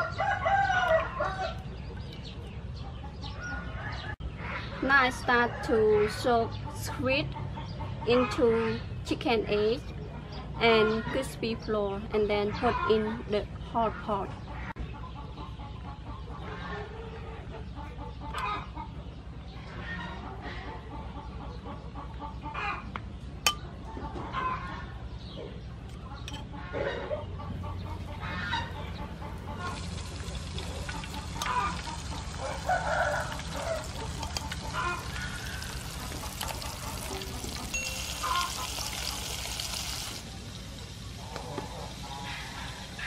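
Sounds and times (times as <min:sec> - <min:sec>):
chickens clucking: 0:09.8 - 0:43.0.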